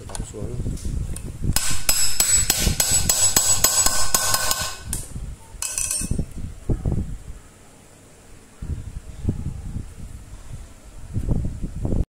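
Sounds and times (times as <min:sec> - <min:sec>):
rapid metal tapping: 0:01.6 - 0:05.0.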